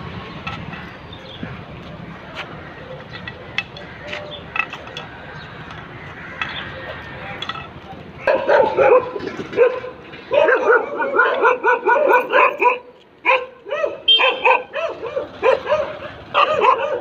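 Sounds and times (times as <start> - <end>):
dog barking high-pitched: 8.3 - 17.0.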